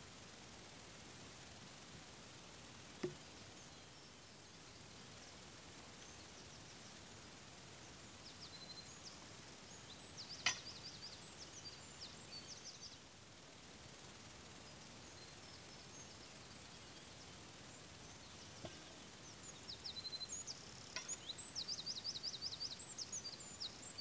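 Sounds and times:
outdoor hiss: 0:00.0 - 0:24.0
tool knocking on log: 0:03.0 - 0:03.2.

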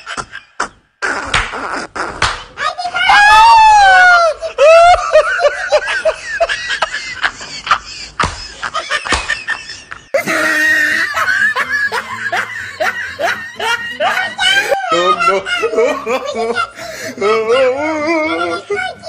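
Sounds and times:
person laughing: 0:04.4 - 0:18.5.

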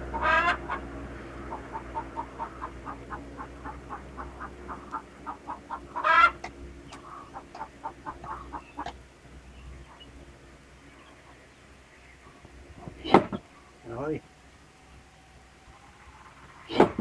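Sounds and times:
hen clucking: 0:00.0 - 0:10.2
hen squawk: 0:00.1 - 0:00.9, 0:01.5 - 0:09.0.

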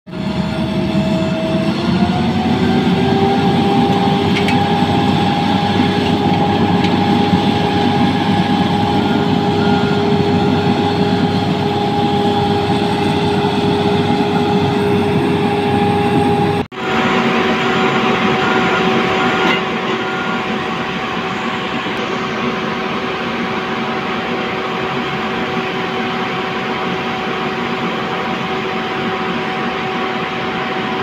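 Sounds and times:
road roller diesel engine revving: 0:00.1 - 0:22.2
engine whine: 0:00.1 - 0:31.0.

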